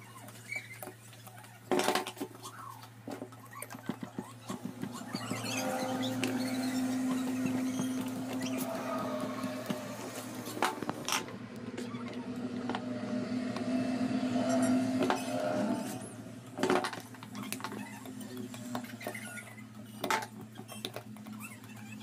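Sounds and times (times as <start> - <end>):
low hum: 4.2 - 20.1.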